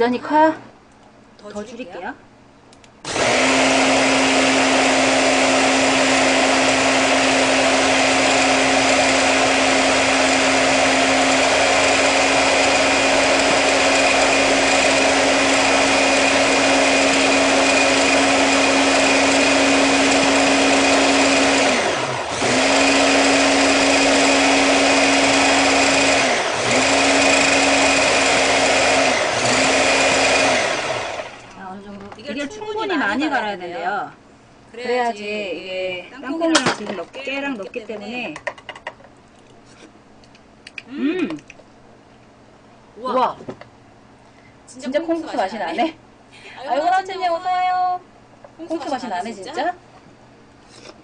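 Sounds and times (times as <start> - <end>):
electric hand blender running: 3.1 - 31.5.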